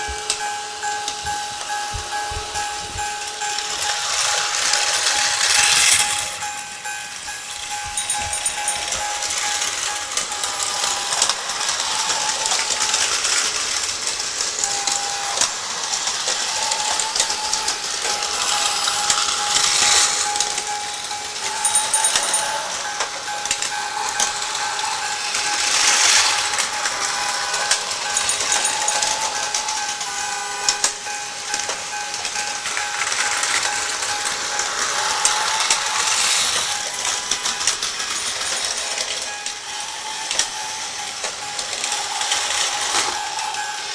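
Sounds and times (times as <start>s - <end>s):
wheels clicking and rattling: 0.0s - 30.0s
faint motor whine: 0.0s - 43.9s
toy train motors whirring: 0.0s - 43.9s.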